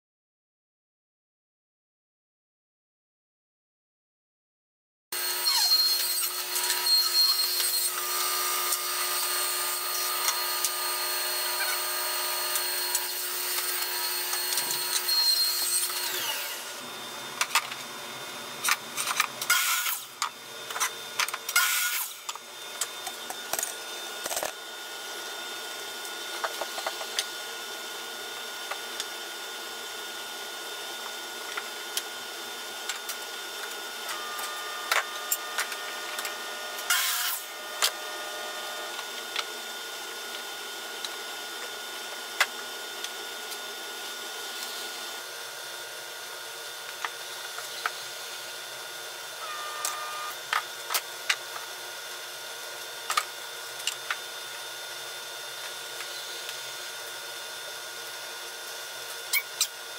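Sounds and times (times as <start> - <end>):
miter saw cutting: 5.2 - 17.4, 19.4 - 27.4, 33.0 - 52.4
table saw whine: 5.2 - 59.9.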